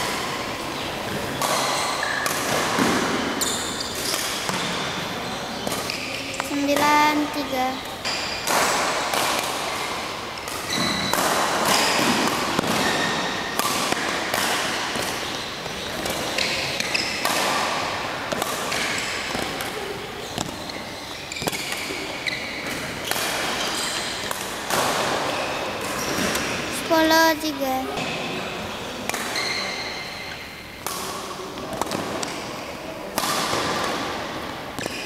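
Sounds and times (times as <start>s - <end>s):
rackets hitting shuttlecock: 8.3s - 15.2s, 16.0s - 19.8s, 33.1s - 34.2s.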